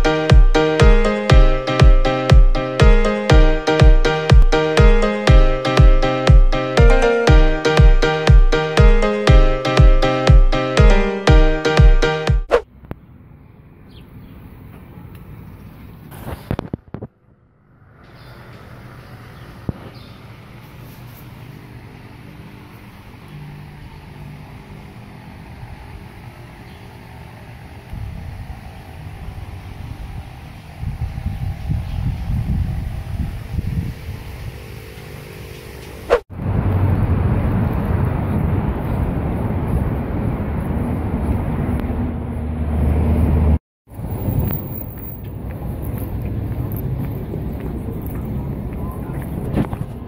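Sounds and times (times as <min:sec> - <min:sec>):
road traffic noise: 0:00.0 - 0:50.0
low outdoor rumble: 0:14.5 - 0:50.0
vehicle passing by: 0:17.6 - 0:20.8, 0:36.1 - 0:49.4.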